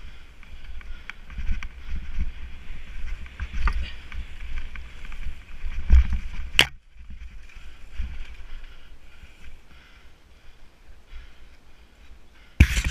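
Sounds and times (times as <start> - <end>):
wind rumble on microphone: 0.0 - 9.6
bike rattling and knocking: 0.4 - 8.6.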